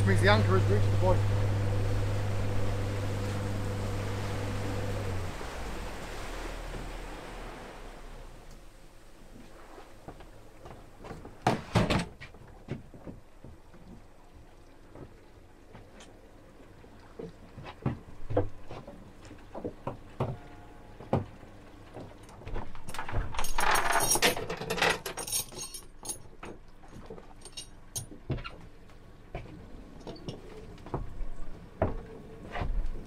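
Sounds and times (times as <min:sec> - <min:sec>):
chain rattling: 0:22.7 - 0:26.4, 0:27.4 - 0:28.1
anchor chain clinking and knocking: 0:22.7 - 0:28.2.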